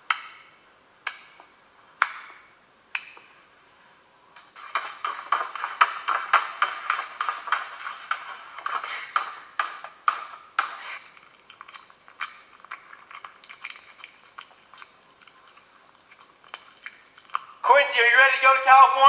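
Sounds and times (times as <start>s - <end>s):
dog chewing wetly: 10.8s - 17.6s.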